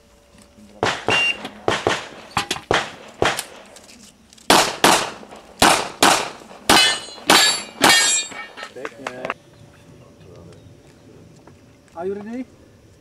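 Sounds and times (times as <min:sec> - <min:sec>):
handgun shots echoing: 0:00.8 - 0:03.8, 0:04.5 - 0:08.4.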